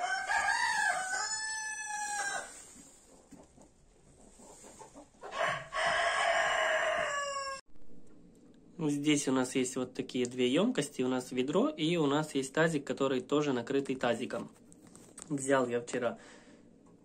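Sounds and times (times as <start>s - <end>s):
rooster crowing: 0.0s - 2.6s, 5.3s - 7.6s.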